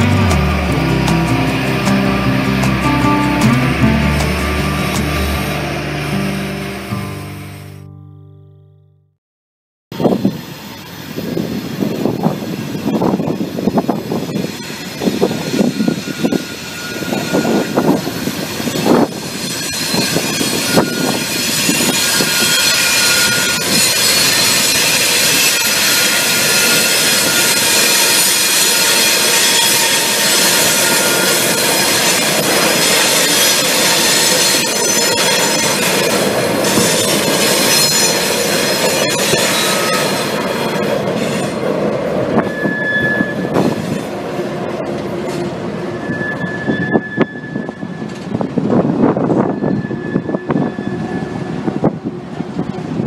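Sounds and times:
train passing over bridge: 0:00.0 - 0:08.0, 0:10.0 - 0:53.0
wind on microphone: 0:10.0 - 0:23.9, 0:46.0 - 0:53.0
wheel squeal: 0:11.7 - 0:41.6, 0:42.3 - 0:44.1, 0:45.3 - 0:51.9.

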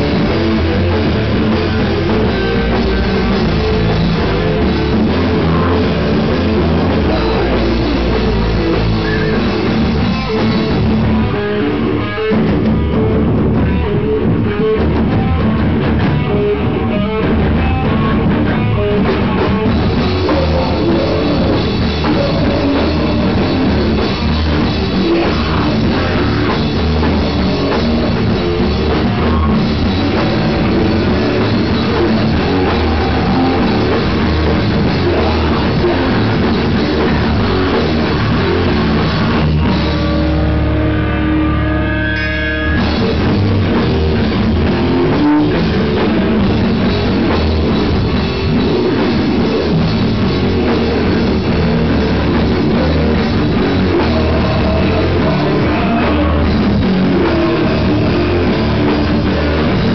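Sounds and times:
heavy rock band playing live: 0:00.0 - 0:59.9.

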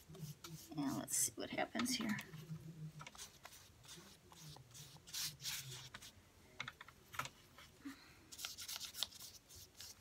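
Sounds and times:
paintbrush scrubbing paper: 0:00.0 - 0:01.3, 0:02.4 - 0:06.1, 0:08.3 - 0:10.0.

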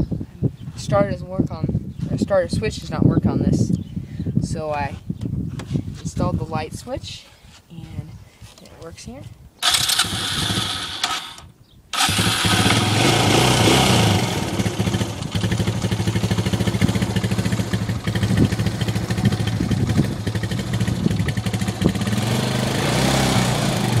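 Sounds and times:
quad bike engine idling: 0:09.6 - 0:11.4, 0:12.0 - 0:24.0.

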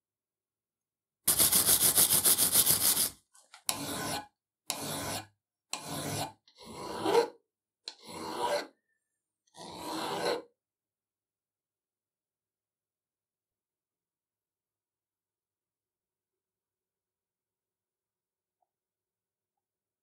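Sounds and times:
file rasping on metal: 0:01.3 - 0:08.8, 0:09.5 - 0:10.6.

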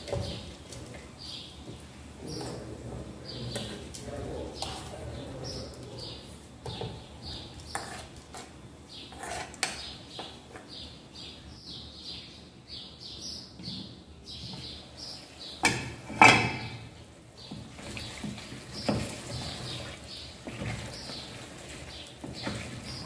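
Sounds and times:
spoon scraping in a pot: 0:03.5 - 0:05.0, 0:06.2 - 0:10.7, 0:17.6 - 0:23.0
bird chirping: 0:09.8 - 0:15.7.

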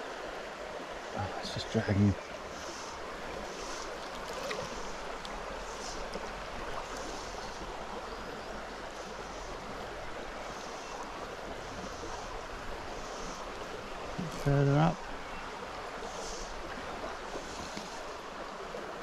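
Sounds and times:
river water running over stones: 0:00.0 - 0:19.0.

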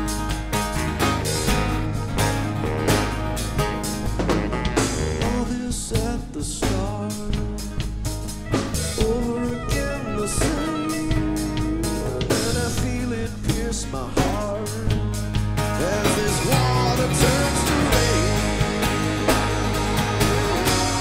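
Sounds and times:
rock band playing: 0:00.0 - 0:21.0
man singing: 0:05.1 - 0:21.0.

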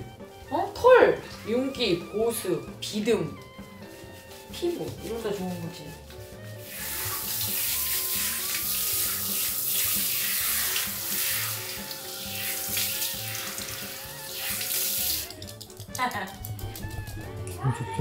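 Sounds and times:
shower water spraying: 0:03.8 - 0:17.0.

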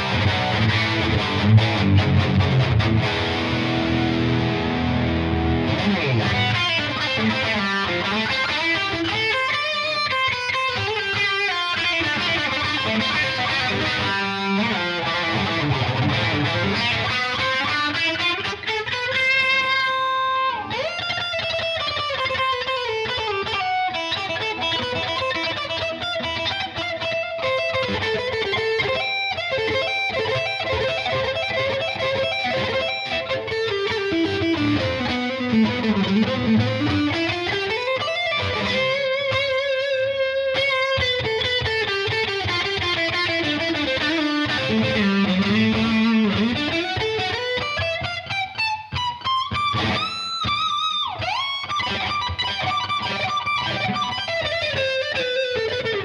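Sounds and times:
distorted electric guitar lead: 0:00.0 - 0:56.0.

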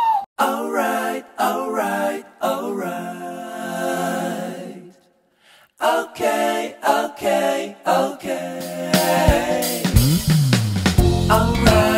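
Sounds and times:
person singing a cappella: 0:00.4 - 0:05.0, 0:05.8 - 0:09.9, 0:11.0 - 0:11.9.

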